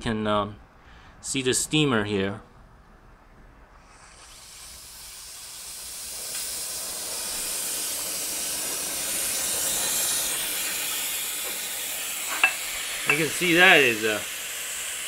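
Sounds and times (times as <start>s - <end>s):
steam wand hissing: 3.8s - 15.0s.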